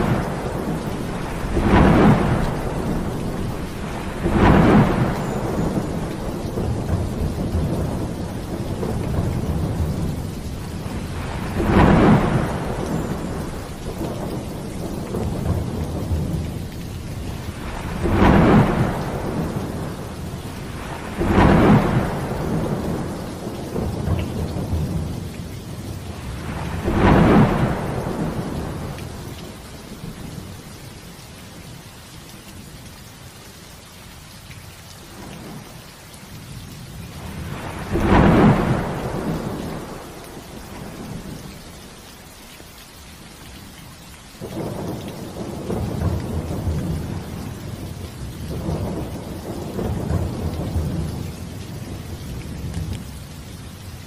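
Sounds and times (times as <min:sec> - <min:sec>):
sharp thunderclaps: 0:00.0 - 0:16.6, 0:17.2 - 0:25.2, 0:26.1 - 0:29.2, 0:37.1 - 0:41.4, 0:44.5 - 0:53.1
low rolling thunder rumble: 0:00.0 - 0:30.7, 0:35.1 - 0:42.0, 0:44.4 - 0:54.0
heavy rain: 0:00.0 - 0:54.0.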